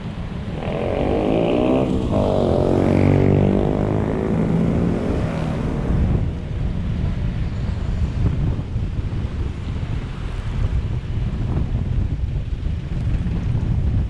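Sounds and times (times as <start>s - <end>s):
road and wind noise: 0.0s - 14.0s
vehicle engine accelerating: 0.4s - 6.6s.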